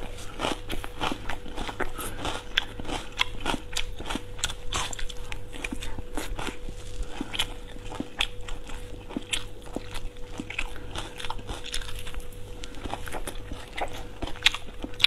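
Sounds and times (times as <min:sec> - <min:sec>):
faint steady hum: 0:00.0 - 0:15.0
person chewing food: 0:00.0 - 0:15.0.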